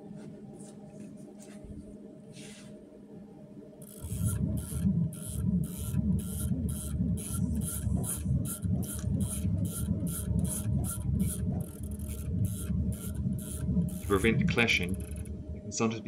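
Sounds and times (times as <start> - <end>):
low wavering motor whine: 3.5 - 16.0
motor drive pulsing: 3.8 - 16.0.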